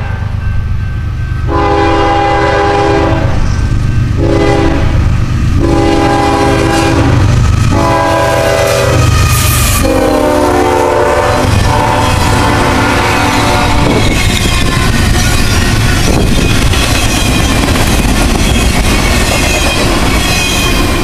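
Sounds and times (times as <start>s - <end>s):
train engine and wheels rumbling: 0.0s - 21.0s
locomotive air horn blasts: 1.5s - 3.4s, 4.2s - 5.0s, 5.6s - 14.0s.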